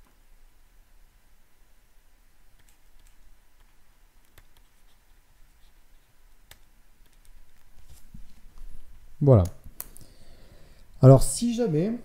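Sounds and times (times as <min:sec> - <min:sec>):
stylus tapping and scratching: 0:02.6 - 0:09.6.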